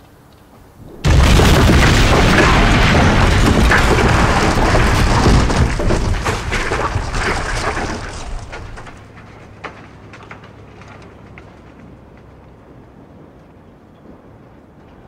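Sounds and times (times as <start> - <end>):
falling masonry rumble: 0.6 - 15.0
heavy boom of wall collapsing: 0.9 - 9.0.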